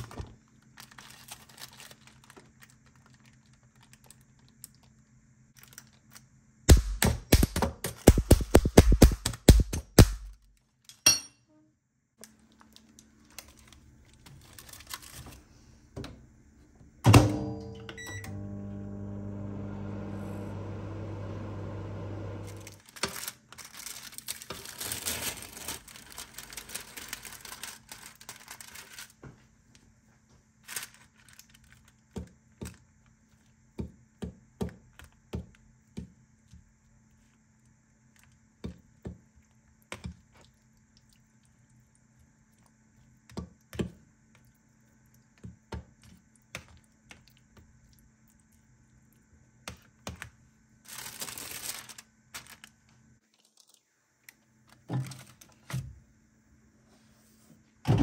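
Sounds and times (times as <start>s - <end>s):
plastic film crinkling: 0.0s - 4.9s, 5.6s - 6.3s, 12.2s - 15.5s, 22.5s - 29.5s, 30.6s - 32.1s, 50.8s - 53.9s.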